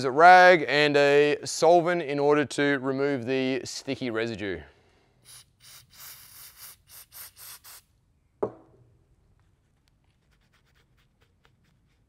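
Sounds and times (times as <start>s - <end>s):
aerosol can spraying: 5.2s - 7.9s
can knocking on bench: 8.4s - 8.7s.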